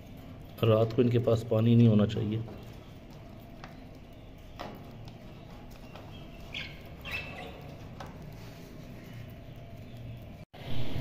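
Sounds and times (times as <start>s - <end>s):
budgerigars chirping: 3.6s - 10.3s.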